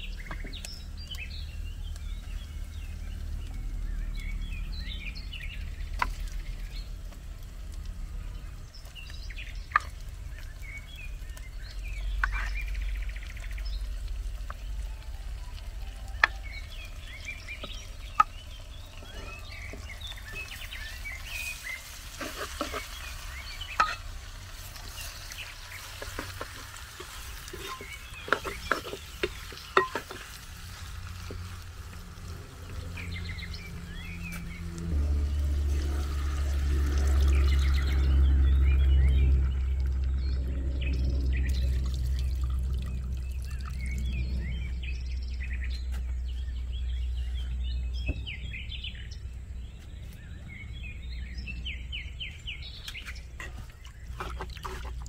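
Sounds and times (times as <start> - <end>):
small birds chirping: 0.0 - 55.0
metal ladle scraping clay pot: 21.2 - 31.6, 53.4 - 55.0
low rumble: 30.6 - 53.4.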